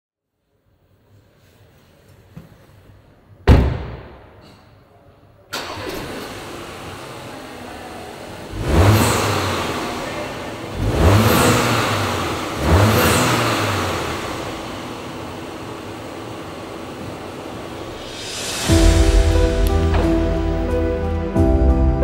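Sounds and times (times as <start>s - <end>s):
car engine revving and idling: 5.6s - 21.2s.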